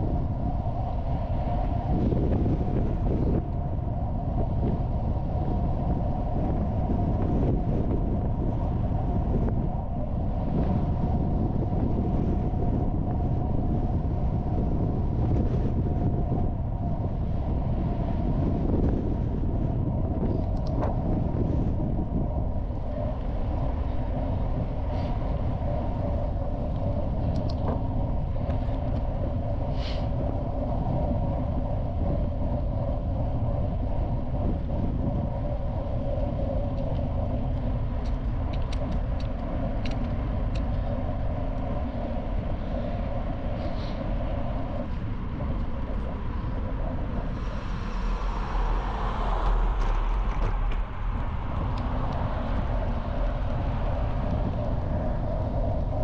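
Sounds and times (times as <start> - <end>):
wind rumble on microphone: 0.0 - 56.0
small clicks: 38.0 - 40.8.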